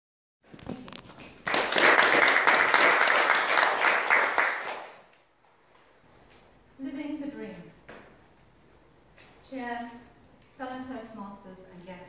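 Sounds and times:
audience applauding: 1.3 - 5.1.

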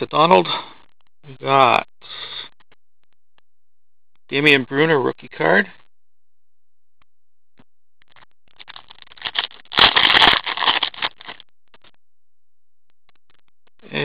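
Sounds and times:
foil wrapper tearing and crinkling: 8.5 - 11.4.

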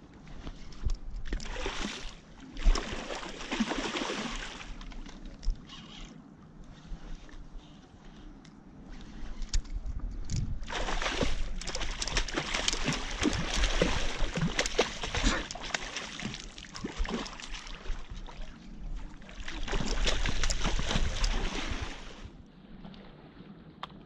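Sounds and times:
fish thrashing and splashing: 10.7 - 18.5, 19.3 - 22.2.

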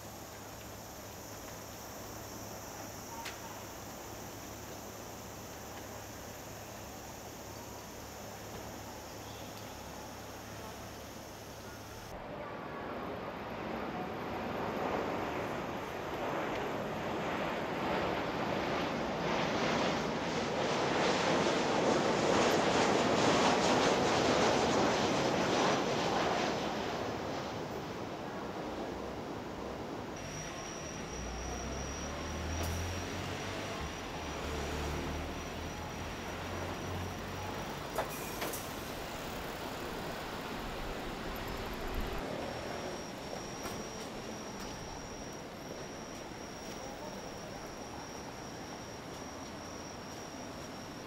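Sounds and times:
jet airliner engine rushing: 0.0 - 51.0
street noise: 26.6 - 51.0.

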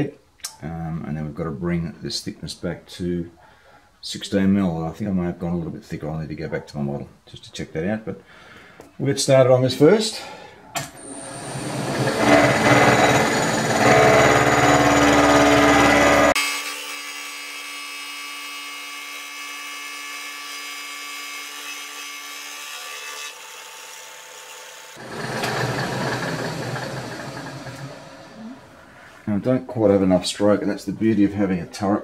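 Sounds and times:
machine whine: 10.8 - 16.4, 25.0 - 29.0
milling cutter machining metal: 11.0 - 16.4, 25.0 - 28.4.

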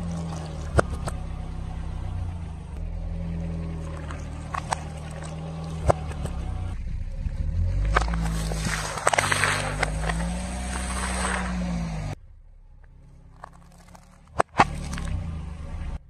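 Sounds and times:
car engine humming: 0.0 - 16.0
tyre crushing crunchy puffs: 7.6 - 12.2, 12.9 - 15.3
sharp cracks: 7.8 - 12.2, 12.8 - 15.2.

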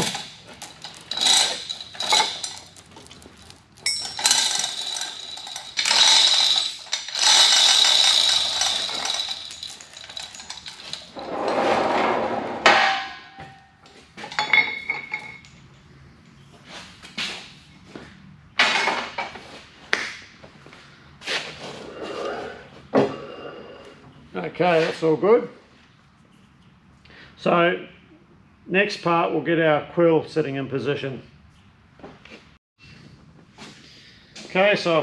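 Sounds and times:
chain rattling and clinking: 0.0 - 11.5
metal clanks: 0.0 - 15.5.

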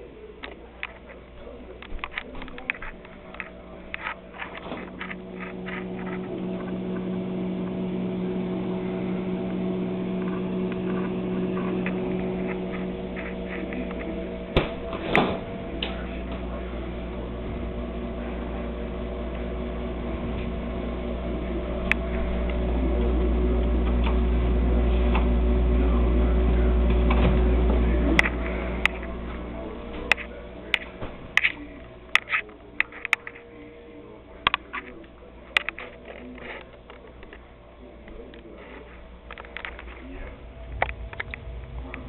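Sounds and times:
refrigerator electric hum: 0.0 - 42.0
deep low rumble: 5.2 - 32.0, 39.0 - 42.0.

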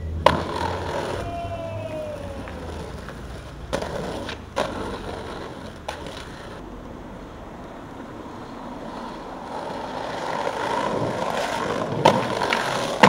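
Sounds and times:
skateboard wheels rolling on pavement: 0.0 - 13.0
skateboard smacking: 0.1 - 6.6, 8.9 - 13.0
light skateboard clacks: 0.2 - 7.0, 7.6 - 13.0.

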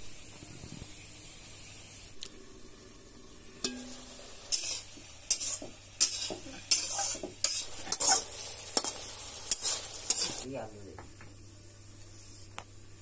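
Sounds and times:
food sizzling in a pan: 0.0 - 10.7
spoon scraping a pan: 3.6 - 10.5.

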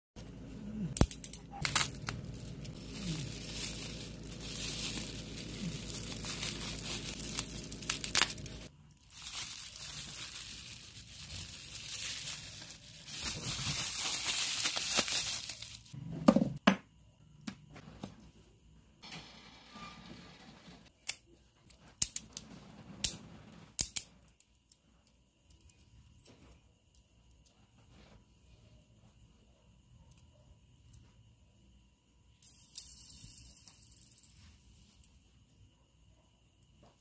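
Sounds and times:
bubble wrap crinkling: 1.0 - 16.0.

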